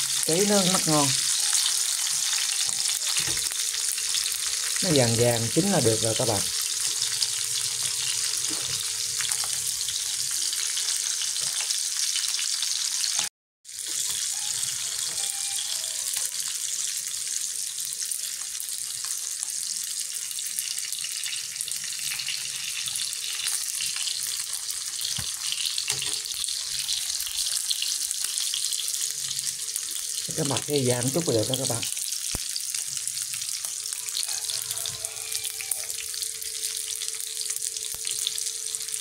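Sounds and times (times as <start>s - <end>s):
fish sizzling in hot oil: 0.0s - 39.0s.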